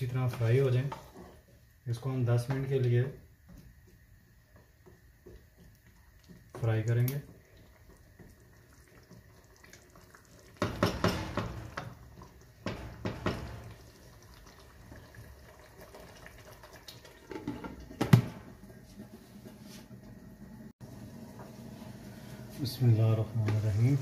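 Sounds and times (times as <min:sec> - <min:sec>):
wooden spatula stirring wet mixture: 0:00.0 - 0:18.0.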